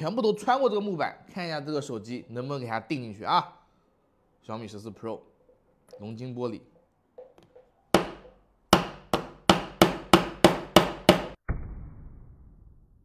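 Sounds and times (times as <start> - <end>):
dull low boom: 11.4 - 13.0.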